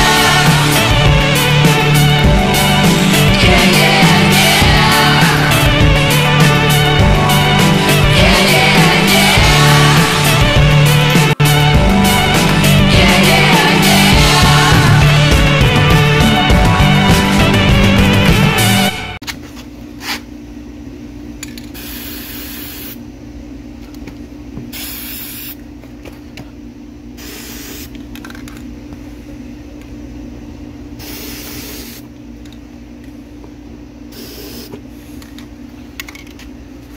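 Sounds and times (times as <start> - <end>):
spray-paint can hissing: 21.8 - 23.0, 24.8 - 25.6, 27.2 - 27.9, 31.0 - 32.0, 34.2 - 34.7.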